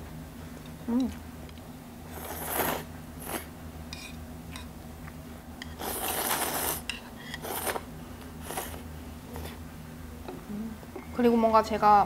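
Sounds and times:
low steady hum: 0.0 - 12.0
person slurping noodles: 2.1 - 3.5, 5.7 - 9.6.

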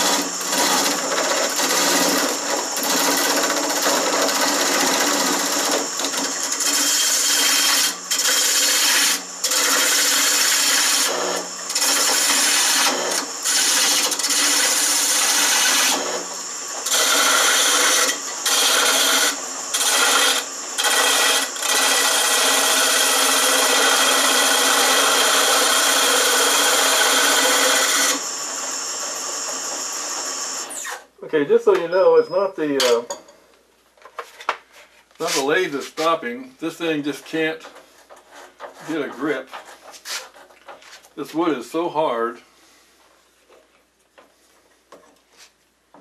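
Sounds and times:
lathe running: 0.0 - 30.9
gouge scraping spinning wood: 0.0 - 31.0.

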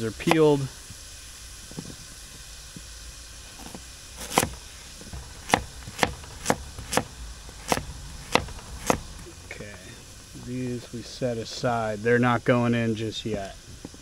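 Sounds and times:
knife chopping carrots on plastic board: 4.2 - 9.1.

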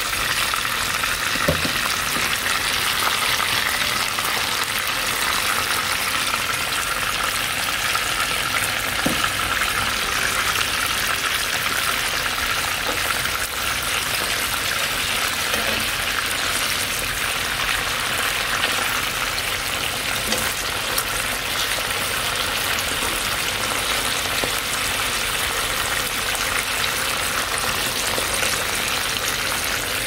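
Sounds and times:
fish frying in hot oil: 0.0 - 30.0.

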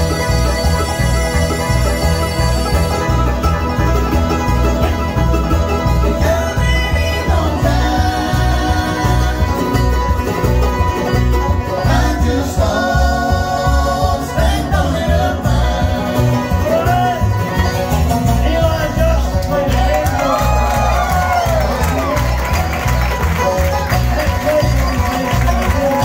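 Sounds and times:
bluegrass band playing: 0.0 - 26.0.

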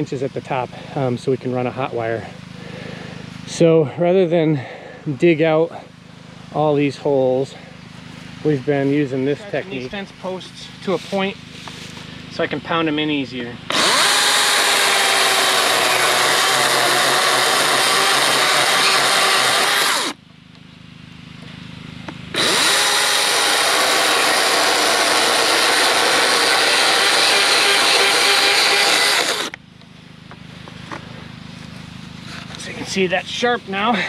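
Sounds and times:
chainsaw cutting wood: 13.7 - 20.2, 22.3 - 29.6.

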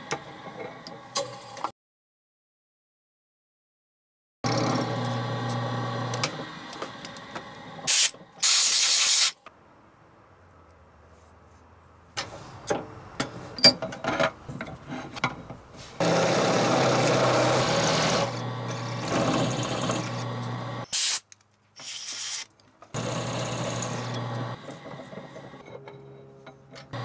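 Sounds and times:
drill press running: 4.5 - 7.8, 16.0 - 20.9, 23.0 - 25.6
loud hissing bursts: 7.9 - 9.4
drill cutting into steel: 23.0 - 24.5.

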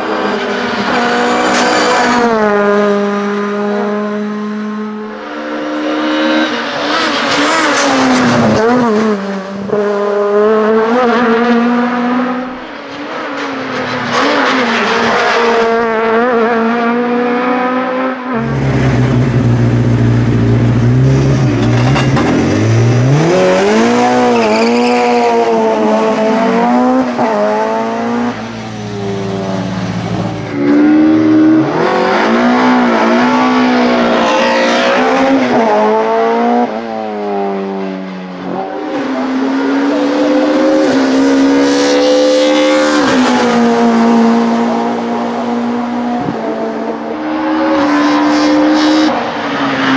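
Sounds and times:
car engine at full throttle: 0.0 - 49.9
car engine idling and revving: 18.4 - 49.9.

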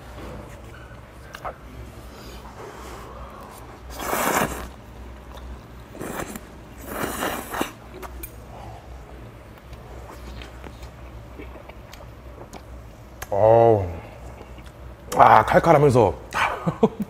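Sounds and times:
man slurping noodles: 2.6 - 4.8, 5.9 - 7.8.

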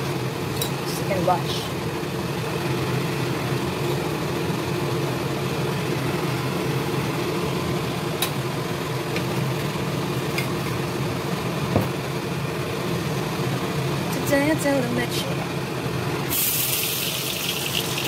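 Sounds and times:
low mechanical hum: 0.0 - 18.0
sugar sizzling in hot oil: 16.2 - 18.0.

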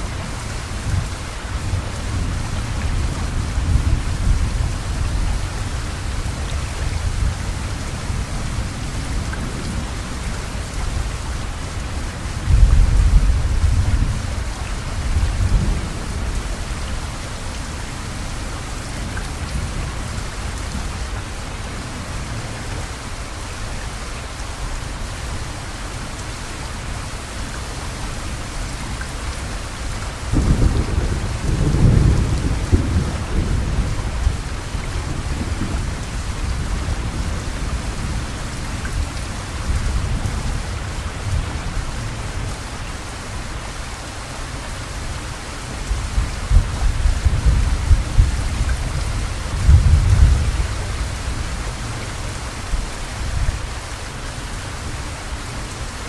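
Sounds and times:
heavy rain: 0.0 - 56.0
low rolls of thunder: 30.3 - 38.2, 45.9 - 51.2.

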